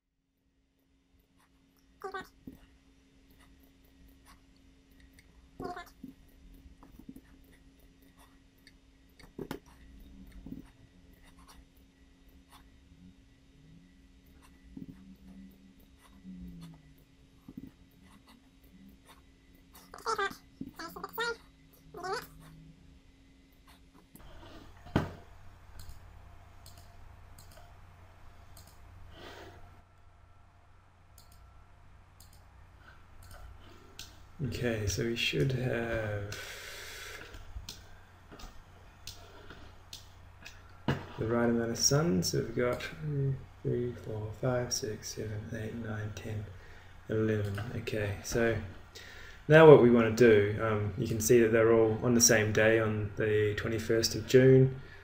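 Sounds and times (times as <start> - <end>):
steady low hum: 0.0 - 55.0
computer mouse clicks: 25.8 - 26.0, 26.6 - 27.7, 28.5 - 28.8, 31.2 - 31.4, 33.2 - 34.2.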